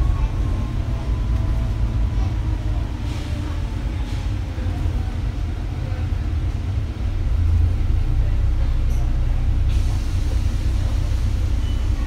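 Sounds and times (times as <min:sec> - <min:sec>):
bus engine rumble: 0:00.0 - 0:12.0
road noise: 0:00.0 - 0:12.0.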